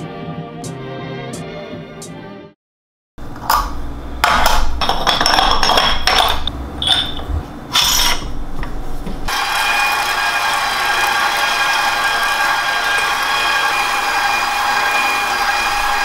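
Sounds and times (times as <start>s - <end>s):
kitchen tools and dishes clattering: 3.4s - 8.4s
small motor running: 9.3s - 16.0s.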